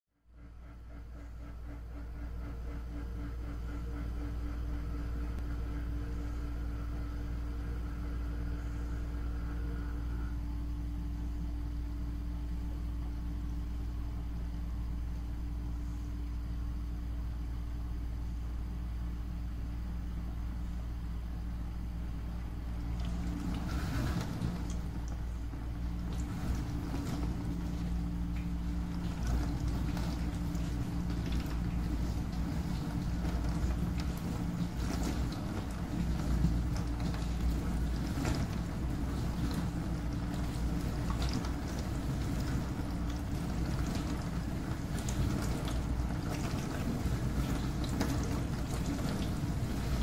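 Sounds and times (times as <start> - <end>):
dishwasher motor hum: 0.1 - 50.0.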